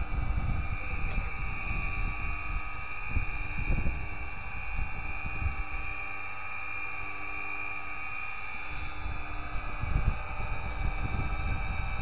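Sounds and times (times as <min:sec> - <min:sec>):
wind rumble on microphone: 0:00.0 - 0:06.0, 0:08.7 - 0:12.0.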